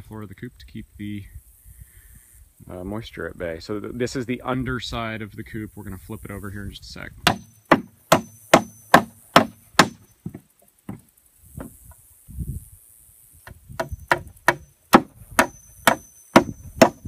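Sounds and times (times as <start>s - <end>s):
dull thud: 7.2s - 11.8s, 13.5s - 17.0s
hammer striking wood: 7.2s - 11.8s, 13.8s - 17.0s.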